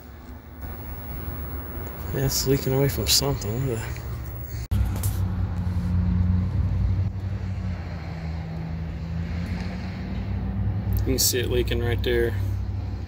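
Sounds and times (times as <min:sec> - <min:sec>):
condensing unit low hum: 0:00.6 - 0:04.6.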